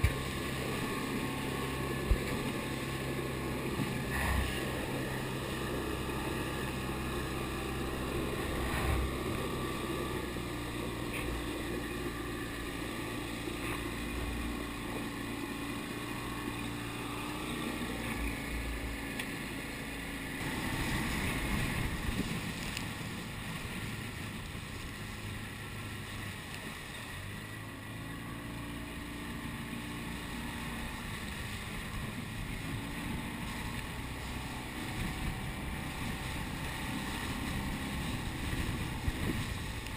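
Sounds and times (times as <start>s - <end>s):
wind on microphone: 0.0s - 12.2s, 20.4s - 25.1s, 30.8s - 39.9s
outboard motor running: 0.0s - 39.9s
water rushing past hull: 0.0s - 39.9s.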